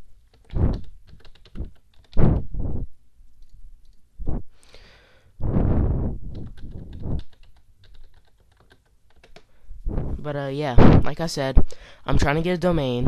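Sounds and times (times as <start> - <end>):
computer keyboard key clicks: 0.3 - 2.2, 6.3 - 9.5
noise rushing on microphone: 0.5 - 0.9, 1.5 - 2.9, 4.2 - 4.6, 5.4 - 7.3, 9.8 - 11.1.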